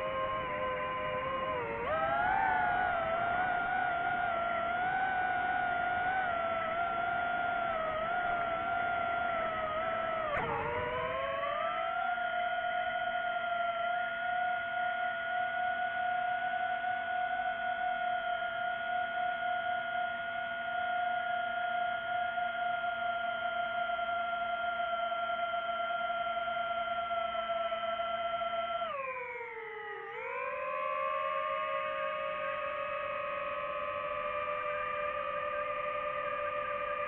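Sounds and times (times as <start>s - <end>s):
drone propellers whining: 0.0s - 11.8s.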